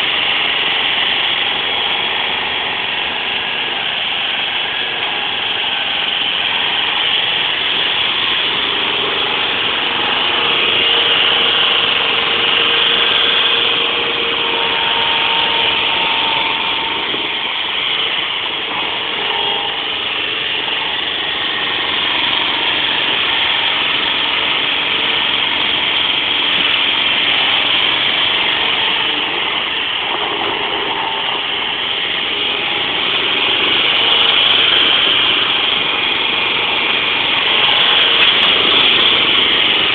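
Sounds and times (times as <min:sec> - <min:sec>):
forklift engine running: 0:00.0 - 0:39.9.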